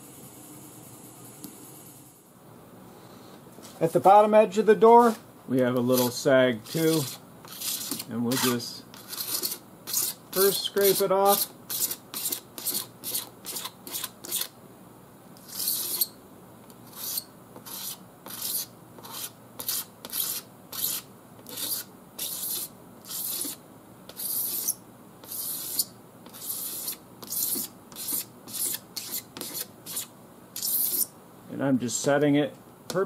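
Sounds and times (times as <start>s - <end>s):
razor blade scraping paint: 5.8s - 14.6s, 15.4s - 16.2s, 16.8s - 31.1s.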